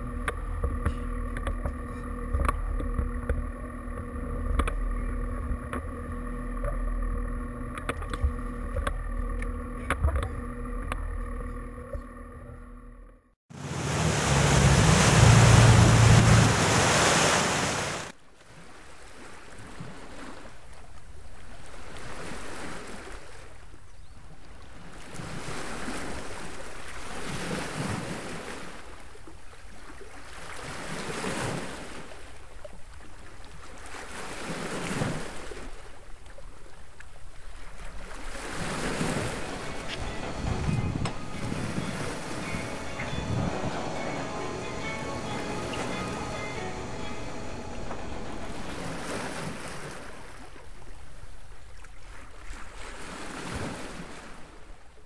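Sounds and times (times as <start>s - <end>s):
churning water: 0.0s - 12.6s, 13.5s - 23.3s, 24.5s - 54.6s
boat engine rumble: 0.0s - 18.1s, 35.2s - 51.4s
wind on microphone: 38.4s - 44.3s.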